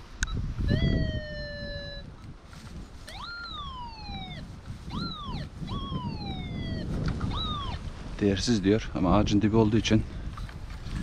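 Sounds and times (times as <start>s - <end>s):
metal detector tone: 0.2s - 2.1s, 3.1s - 7.8s.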